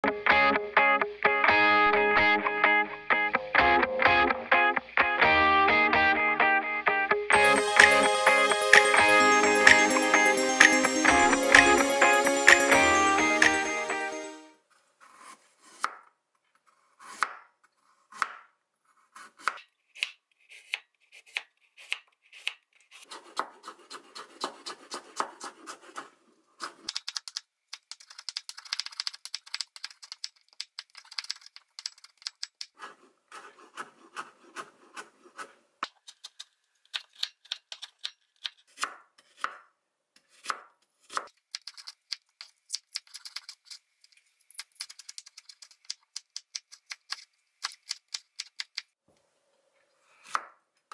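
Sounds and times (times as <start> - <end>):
knife chopping on wooden board: 17.0 - 17.5, 18.1 - 18.5, 19.2 - 23.6.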